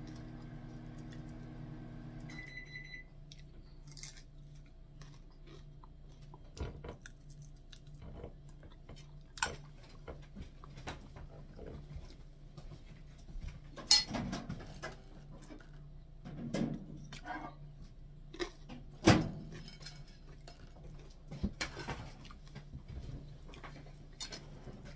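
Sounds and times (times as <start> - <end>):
kitchen appliance humming: 0.0 - 3.0
short electronic beep: 2.3 - 3.1.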